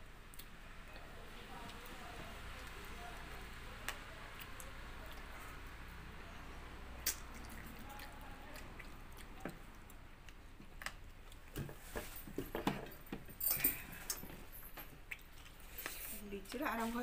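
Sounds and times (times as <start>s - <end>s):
soft chewing: 0.2s - 17.0s.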